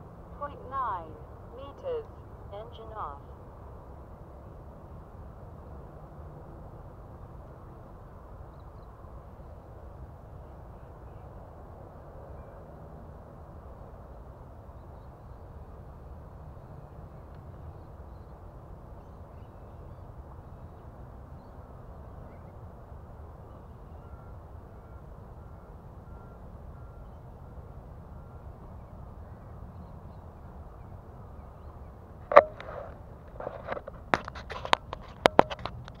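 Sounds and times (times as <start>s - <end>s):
low background noise: 0.0s - 36.0s
sharp clicks and knocks: 32.3s - 36.0s.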